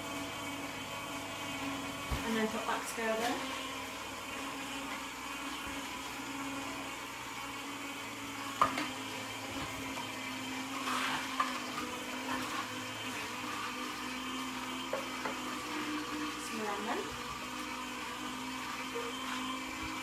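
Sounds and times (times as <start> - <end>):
juicer motor hum: 0.0 - 20.0.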